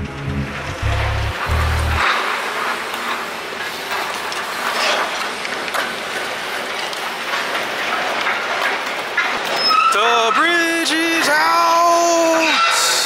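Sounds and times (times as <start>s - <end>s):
bike tyres rolling on concrete: 0.2s - 9.9s.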